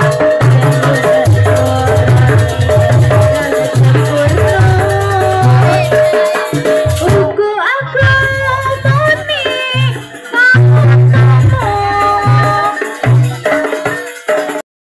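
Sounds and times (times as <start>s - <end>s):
rattle-like percussion: 0.0s - 7.4s, 8.1s - 14.6s
heavy low drum beats: 0.0s - 14.4s
folk music over loudspeakers: 0.0s - 14.6s.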